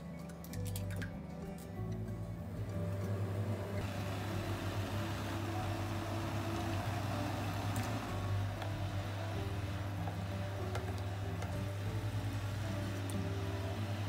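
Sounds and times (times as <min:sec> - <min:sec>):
cooktop humming: 0:01.6 - 0:14.0.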